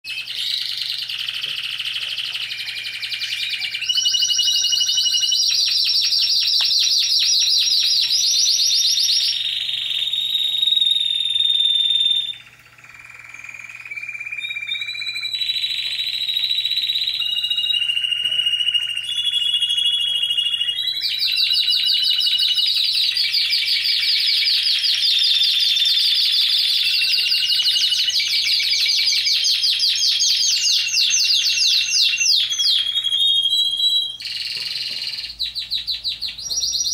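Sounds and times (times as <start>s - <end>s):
canary singing trills and whistles: 0.1s - 36.9s.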